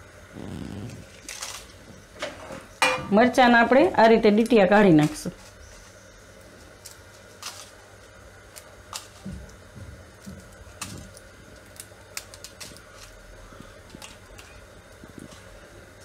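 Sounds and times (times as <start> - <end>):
dried spices clicking in a pan: 6.4 - 16.0.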